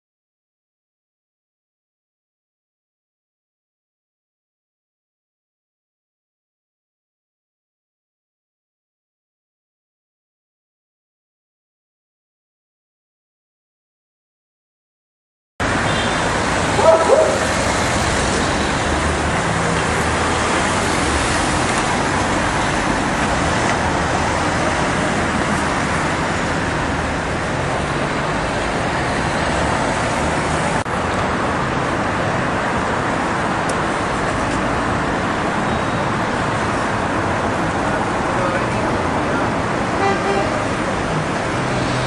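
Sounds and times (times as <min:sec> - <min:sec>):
cars passing on street: 0:15.6 - 0:42.0.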